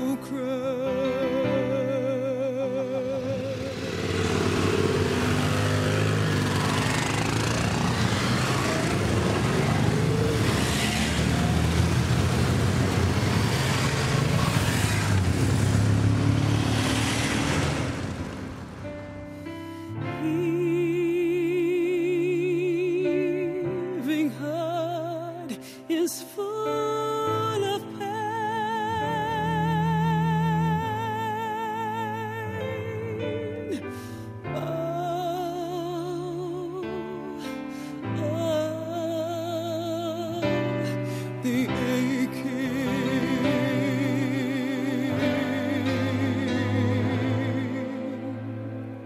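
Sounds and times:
motorcycle engines running: 0:02.9 - 0:19.7
road and wind noise: 0:03.0 - 0:19.8.

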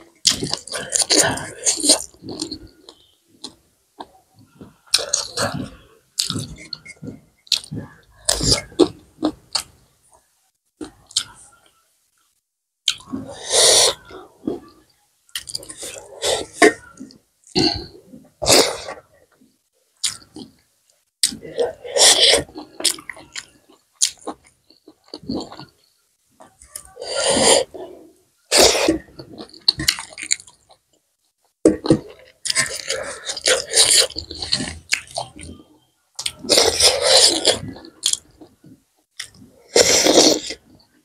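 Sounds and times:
person chewing wet mouth sounds: 0:00.2 - 0:09.8, 0:12.8 - 0:19.0, 0:20.0 - 0:20.6, 0:21.2 - 0:25.8, 0:28.5 - 0:30.8, 0:31.7 - 0:35.6, 0:36.2 - 0:40.8.

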